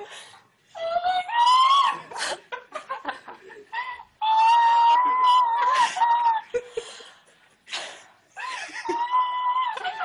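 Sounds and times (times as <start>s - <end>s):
woman squealing: 0.8s - 2.2s, 3.7s - 6.6s, 8.4s - 10.0s
woman laughing and gasping: 5.2s - 10.0s.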